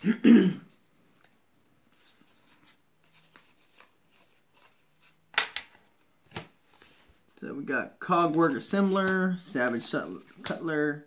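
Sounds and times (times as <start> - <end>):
cards rustling: 0.8 - 7.2, 8.1 - 11.0.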